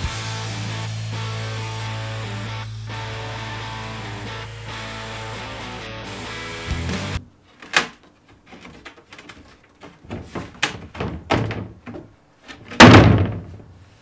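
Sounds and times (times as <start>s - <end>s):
wooden panel knocking and scraping: 7.2s - 13.8s
wooden panel thud: 7.2s - 13.8s.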